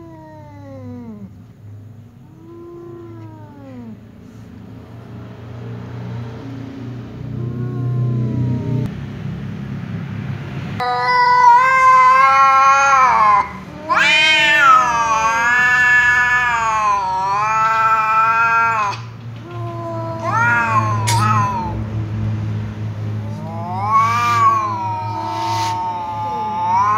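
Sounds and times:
tom cat yowling: 0.0s - 1.4s, 2.3s - 4.1s, 7.3s - 8.9s, 10.8s - 21.9s, 23.2s - 26.9s.

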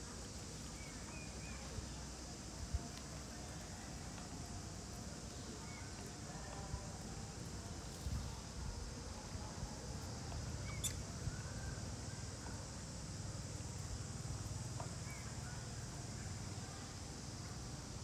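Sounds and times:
faint high squeaks: 10.6s - 11.8s.

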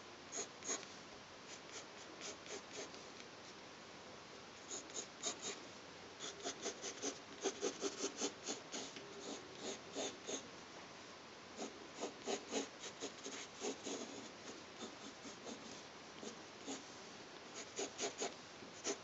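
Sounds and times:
pencil scratching on paper: 1.5s - 3.1s, 4.7s - 5.6s, 6.2s - 10.4s, 11.6s - 16.8s, 17.6s - 19.0s.

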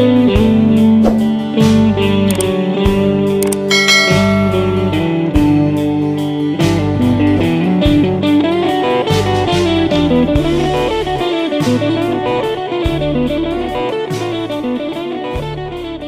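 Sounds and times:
instrumental guitar music: 0.0s - 16.0s.

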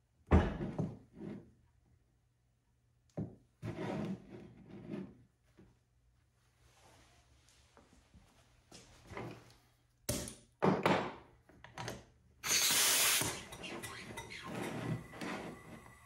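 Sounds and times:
compressed air hiss: 12.5s - 13.4s.

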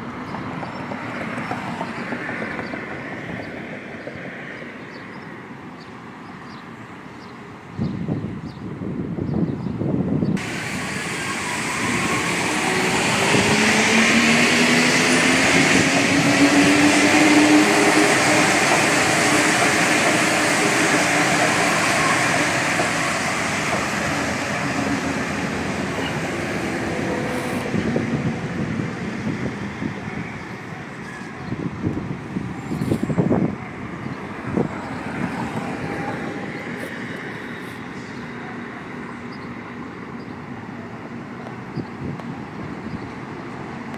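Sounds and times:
train rumbling past: 0.0s - 5.7s, 10.4s - 43.9s
train motor whine: 10.4s - 31.3s.

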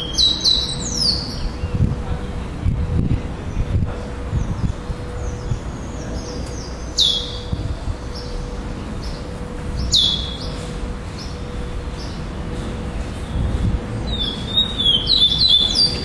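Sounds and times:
bird singing whistled notes: 0.0s - 1.8s, 5.2s - 7.5s, 9.8s - 10.6s, 14.1s - 16.0s.

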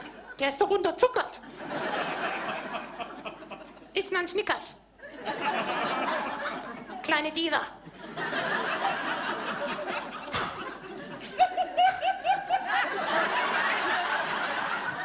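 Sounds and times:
audience laughing: 1.4s - 3.9s, 5.0s - 7.1s, 7.8s - 15.0s
person laughing loudly: 9.7s - 13.2s.

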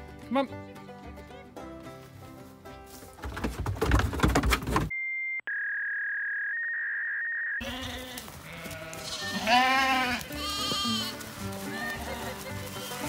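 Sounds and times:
sheep scrambling in a van: 2.9s - 4.9s
sheep bleating loudly: 7.6s - 13.0s.

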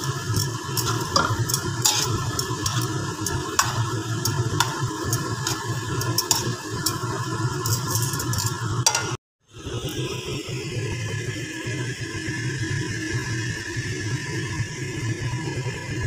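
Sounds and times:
food sizzling in a wok: 0.0s - 9.2s
metal tongs scraping a pan: 0.0s - 9.2s.

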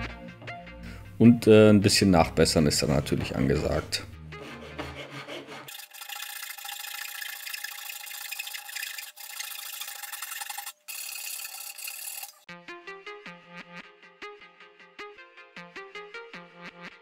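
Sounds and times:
handsaw rasping on wood: 4.4s - 6.0s.

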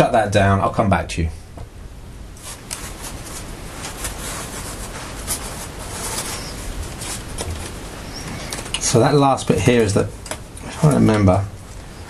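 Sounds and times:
plastic scraping on plastic: 2.4s - 9.0s.

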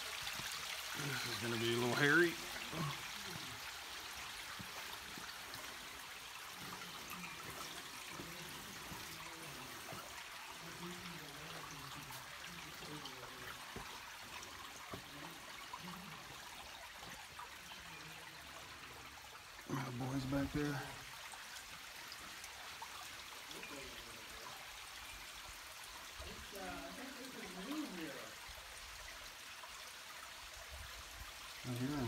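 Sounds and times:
creek water running over rocks: 0.0s - 32.0s.

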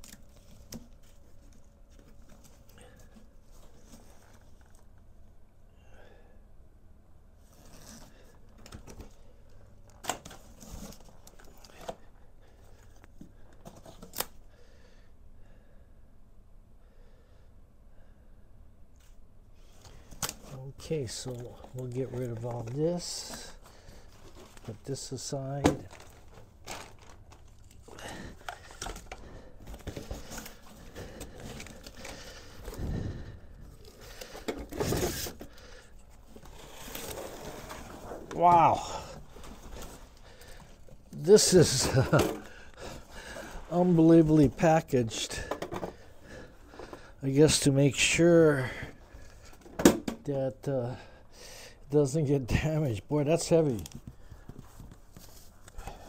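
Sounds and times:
cardboard rustling and scraping: 0.0s - 4.8s, 19.7s - 38.5s, 39.2s - 44.6s, 53.7s - 55.7s
cardboard box rustling and scraping: 36.2s - 38.4s.

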